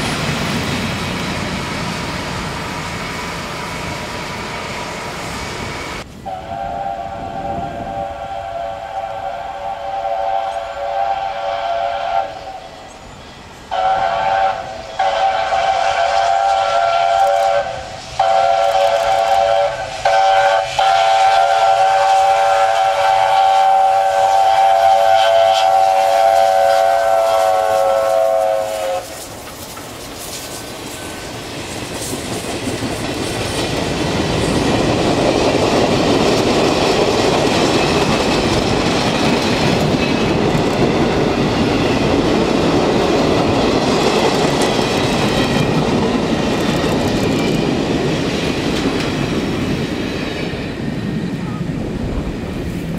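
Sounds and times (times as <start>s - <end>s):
train passing close by: 0.0s - 52.9s
steam locomotive chime whistle: 6.2s - 29.3s
wheels clicking over rail joints: 29.0s - 50.4s.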